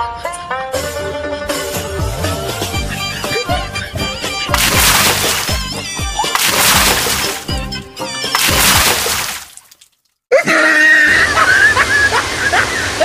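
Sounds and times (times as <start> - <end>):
running water: 4.5 - 10.0.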